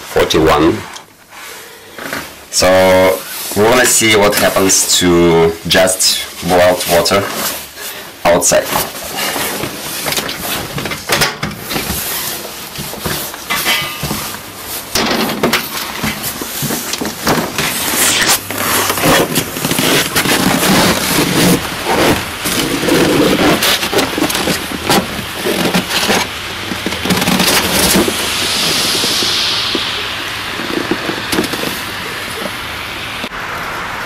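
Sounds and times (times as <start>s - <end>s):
pot rustling and knocking: 9.3s - 29.9s
hissing whoosh of flung water: 14.4s - 34.0s.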